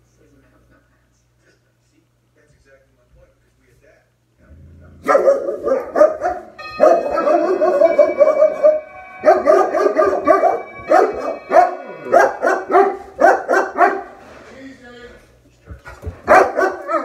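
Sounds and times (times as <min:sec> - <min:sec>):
dogs barking: 0:05.0 - 0:14.2, 0:16.2 - 0:17.0.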